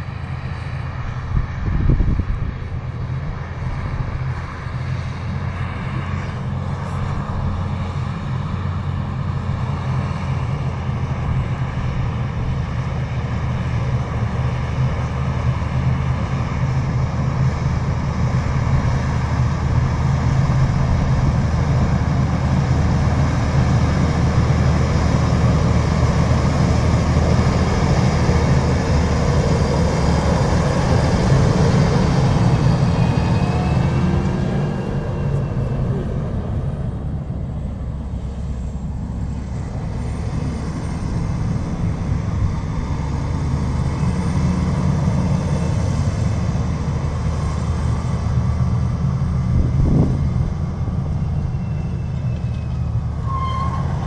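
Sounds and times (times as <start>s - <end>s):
tractor diesel engine under load: 0.0s - 54.0s
wind gust on microphone: 1.1s - 2.8s, 49.4s - 51.3s.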